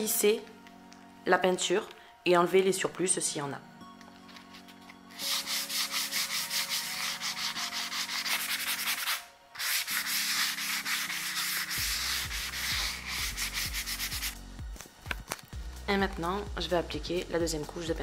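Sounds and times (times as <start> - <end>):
sanding sponge rubbing on wood: 5.2 - 14.4.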